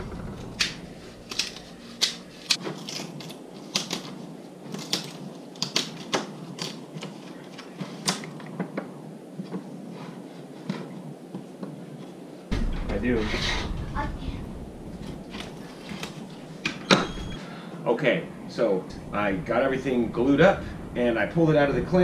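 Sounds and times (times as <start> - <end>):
wooden strips clicking and knocking: 0.0 - 9.7.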